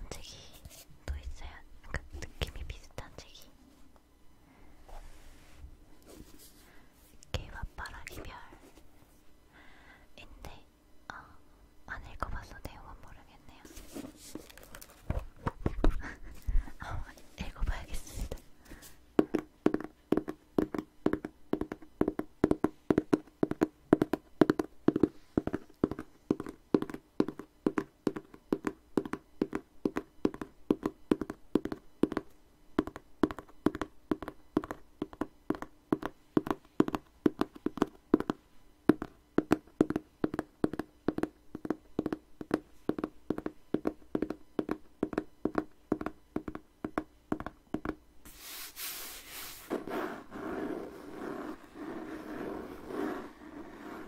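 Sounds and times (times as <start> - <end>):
fingers tapping on book cover: 19.2 - 48.0.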